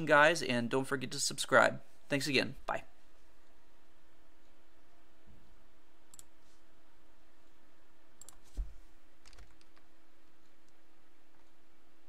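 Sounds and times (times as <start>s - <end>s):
faint steady hum: 0.0s - 12.0s
light computer clicks: 6.1s - 6.4s, 8.2s - 8.6s.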